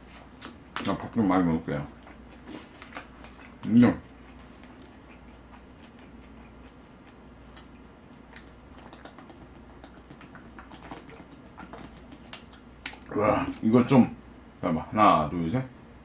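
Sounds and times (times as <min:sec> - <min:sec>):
chewing: 0:01.8 - 0:13.6.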